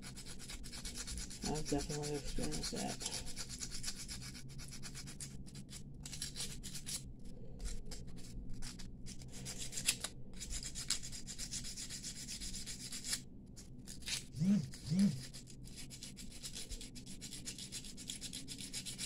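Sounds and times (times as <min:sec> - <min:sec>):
hand file rubbing on metal: 0:00.0 - 0:05.4, 0:08.6 - 0:13.2, 0:14.0 - 0:19.0.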